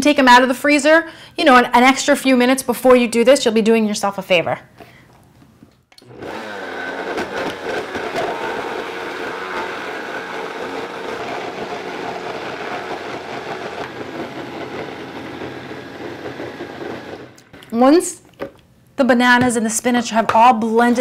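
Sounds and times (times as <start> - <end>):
blender motor running: 6.0 - 17.7.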